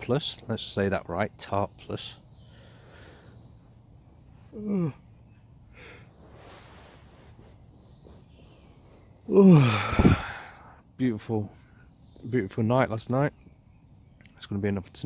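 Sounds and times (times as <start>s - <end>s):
faint bird chirps: 0.0s - 15.0s
man yawning: 4.5s - 5.1s, 9.3s - 10.8s
man groaning: 4.6s - 5.0s, 9.3s - 10.6s.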